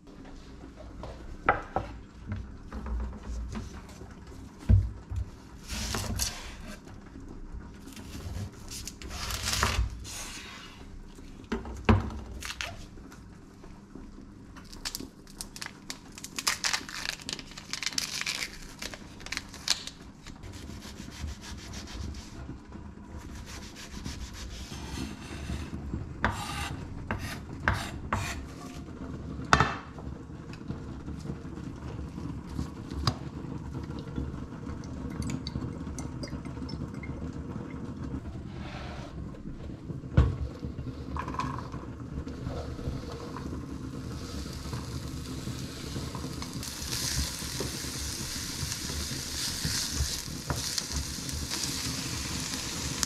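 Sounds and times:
onion skin crackling: 0:14.6 - 0:22.0, 0:44.1 - 0:53.0.

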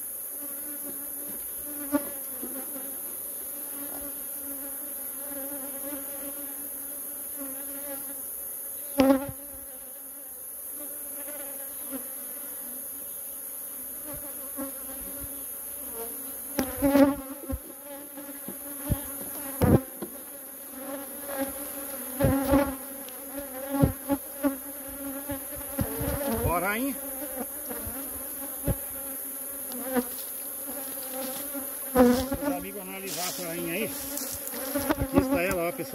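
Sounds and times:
bees buzzing: 0:00.3 - 0:35.9.

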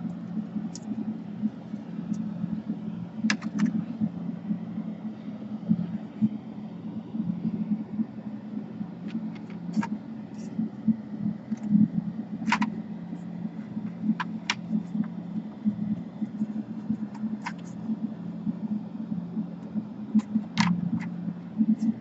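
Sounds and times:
steady low hum: 0:00.0 - 0:22.0
plastic clips snapping into place: 0:12.4 - 0:12.7.

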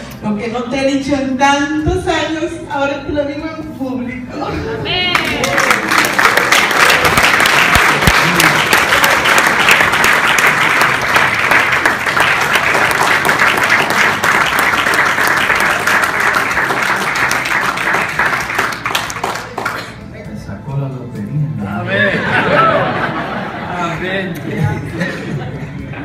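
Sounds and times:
group clapping: 0:05.0 - 0:20.1.

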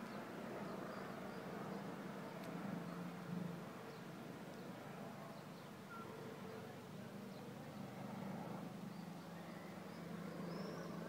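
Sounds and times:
low hum of distant traffic: 0:00.0 - 0:11.0
faint bird chirps: 0:05.3 - 0:06.7, 0:08.9 - 0:11.0.

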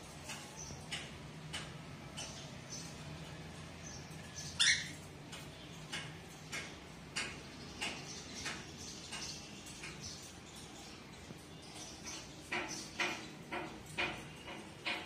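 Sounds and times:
cockatiel chirping: 0:04.6 - 0:05.0.

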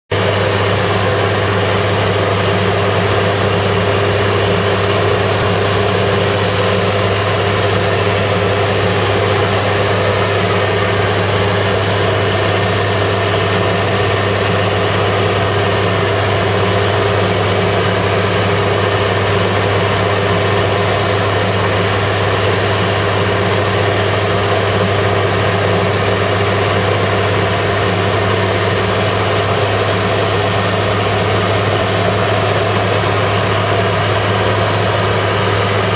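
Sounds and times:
tractor diesel engine humming: 0:00.1 - 0:35.9.

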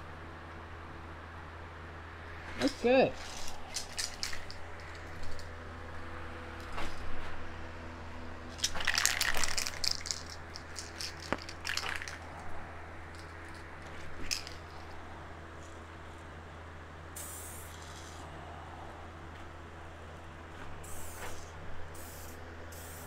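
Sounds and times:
booth fan humming: 0:00.0 - 0:23.0
plastic crackling and rustling: 0:03.2 - 0:05.6, 0:08.6 - 0:12.5.

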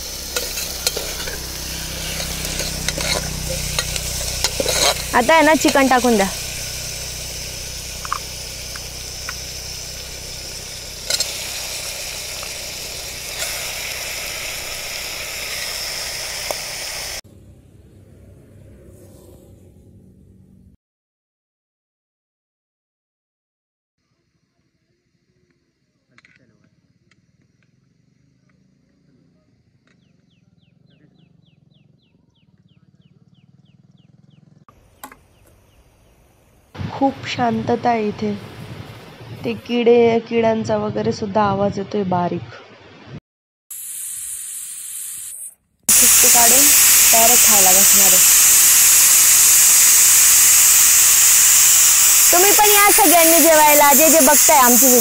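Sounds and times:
food sizzling in hot oil: 0:00.0 - 0:17.2, 0:43.7 - 0:55.0
gas stove burner rumbling: 0:00.0 - 0:17.2, 0:45.9 - 0:55.0
insects chirping: 0:00.0 - 0:17.2, 0:34.7 - 0:36.8, 0:45.9 - 0:55.0.

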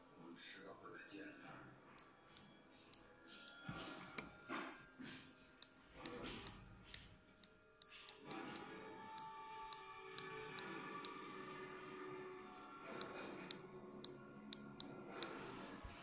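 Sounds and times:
sharp irregular clicks: 0:05.6 - 0:11.2, 0:13.0 - 0:15.4.

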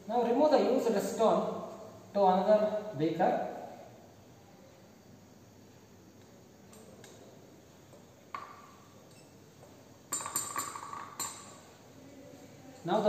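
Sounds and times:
glass clinking: 0:10.1 - 0:11.7.

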